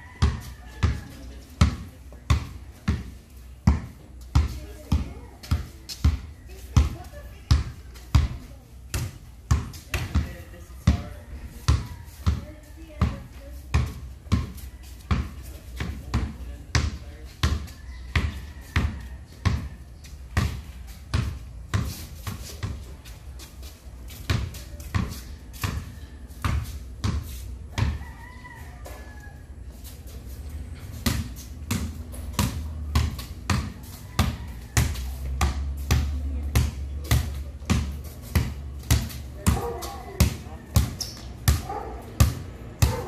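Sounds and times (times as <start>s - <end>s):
basketball bouncing on concrete: 0.0s - 29.1s, 30.8s - 43.0s.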